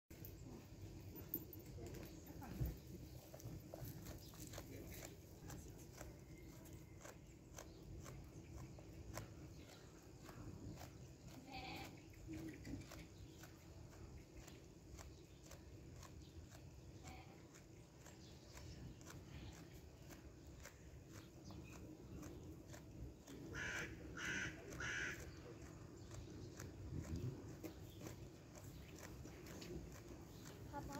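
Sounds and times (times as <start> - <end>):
sheep chewing: 0.1 - 30.9
faint animal call: 23.5 - 25.3.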